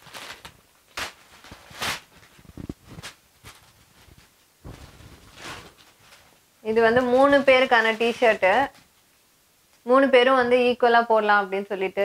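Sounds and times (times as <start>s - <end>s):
plastic packaging crinkling: 0.0s - 8.9s.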